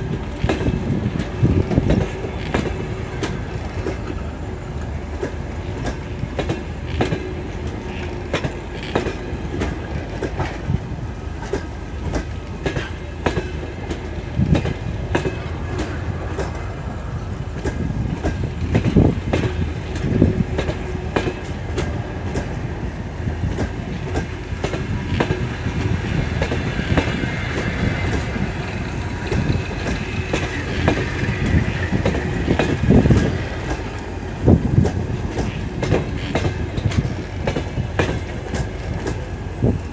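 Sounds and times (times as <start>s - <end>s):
train wheels over rail joints: 0.0s - 39.9s.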